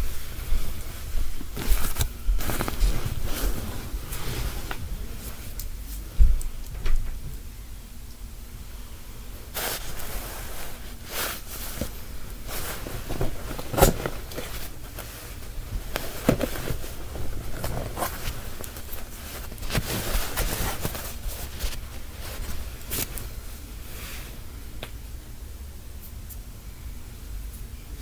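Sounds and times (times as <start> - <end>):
rustling: 0.0 - 6.8, 9.5 - 24.4
low steady hum: 0.0 - 28.0.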